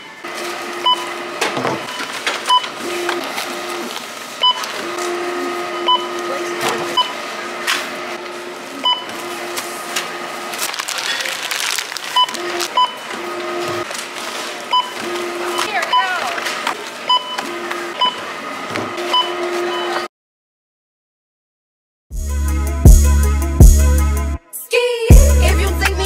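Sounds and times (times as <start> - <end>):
shop background noise: 0.0 - 20.1
barcode scanner beeping: 5.7 - 6.3, 6.9 - 7.2, 12.1 - 13.1, 14.7 - 16.4.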